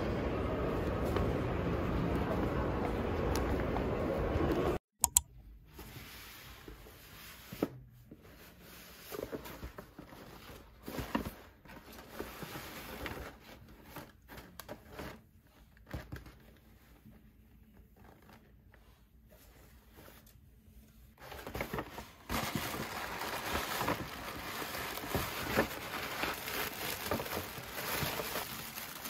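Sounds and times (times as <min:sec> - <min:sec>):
paper bag and tissue rustling: 0:21.1 - 0:29.0.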